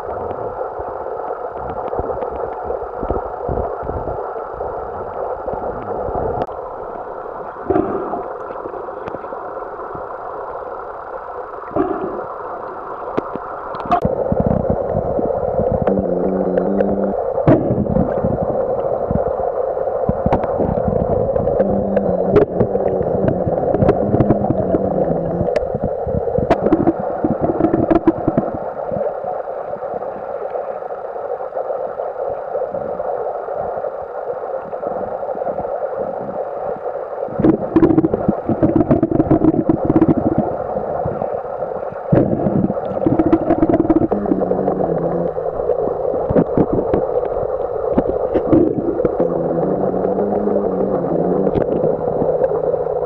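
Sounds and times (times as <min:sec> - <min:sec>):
muffled underwater hiss: 0:00.0 - 0:53.0
sharp underwater clicks: 0:12.7 - 0:15.0, 0:20.0 - 0:28.6
low wavering hum: 0:13.9 - 0:19.4, 0:20.6 - 0:28.1, 0:42.3 - 0:46.9.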